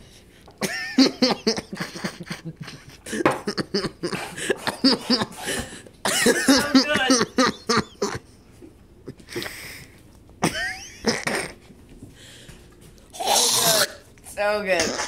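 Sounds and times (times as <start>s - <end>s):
man coughing and sputtering: 0.6s - 8.3s, 10.4s - 11.7s.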